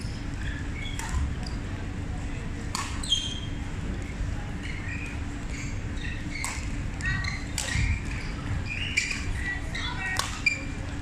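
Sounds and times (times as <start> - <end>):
court shoes squeaking: 0.0 - 1.8, 2.6 - 11.0
low rumble of large hall: 0.0 - 11.0
racket hitting shuttlecock: 0.8 - 1.3, 2.7 - 3.1, 6.4 - 6.8, 7.5 - 8.2, 10.1 - 10.5.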